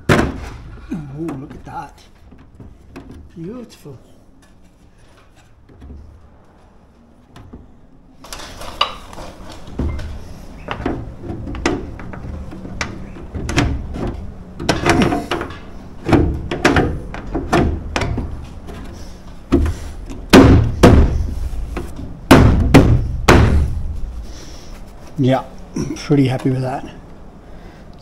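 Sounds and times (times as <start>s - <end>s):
sheet metal knocking and rattling: 10.6s - 24.0s.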